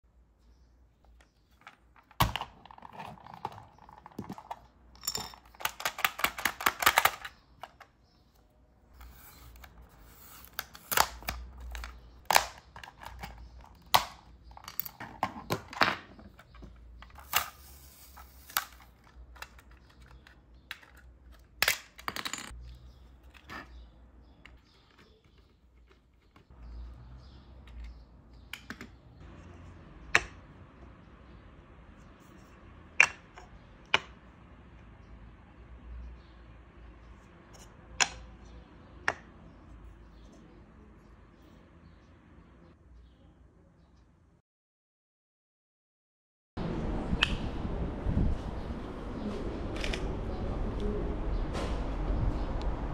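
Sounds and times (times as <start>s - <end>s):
faint low rumble: 46.6s - 52.9s.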